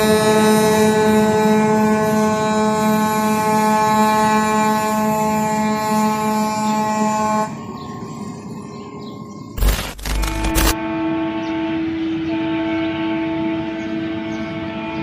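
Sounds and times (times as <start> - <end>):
air horn blast: 10.8 - 13.8.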